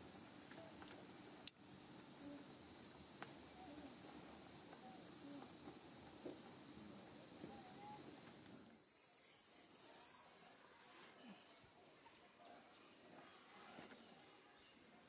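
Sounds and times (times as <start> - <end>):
insect chorus drone: 0.0 - 15.0.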